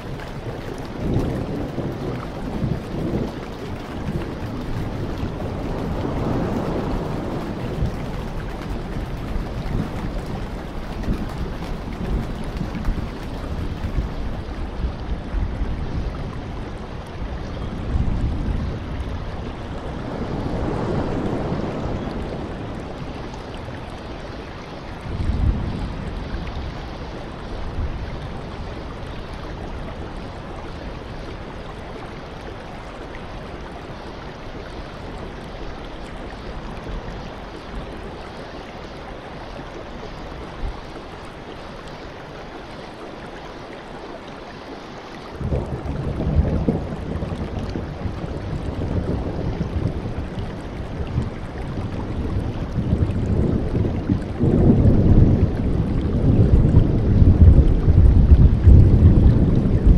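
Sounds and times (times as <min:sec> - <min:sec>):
sea surf breaking over rocks: 0:00.0 - 0:14.4, 0:19.8 - 0:23.7.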